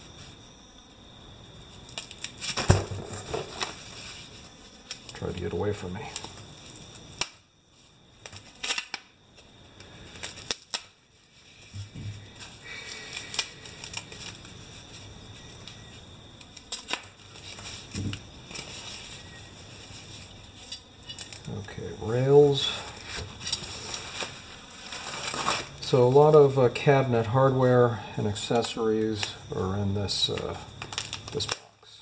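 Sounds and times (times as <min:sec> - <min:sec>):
rustling: 0:01.6 - 0:21.7, 0:22.5 - 0:26.2
foam scraping against cardboard: 0:23.0 - 0:25.7.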